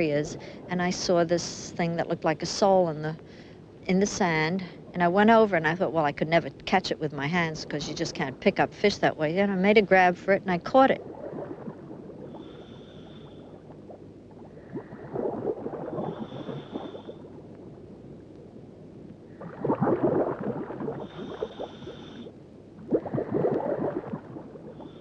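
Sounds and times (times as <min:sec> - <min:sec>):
bubbling exhaled air underwater: 0:11.0 - 0:18.0, 0:19.2 - 0:25.0.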